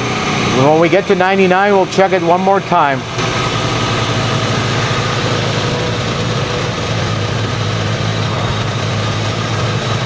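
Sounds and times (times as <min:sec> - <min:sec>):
car engine idling: 0:00.0 - 0:10.0.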